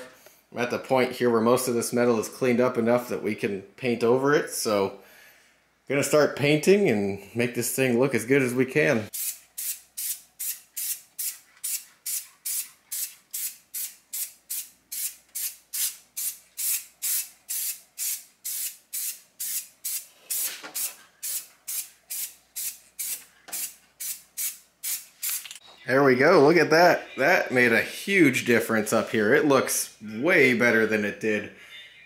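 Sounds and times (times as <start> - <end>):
spray paint can hissing: 9.1 - 25.6.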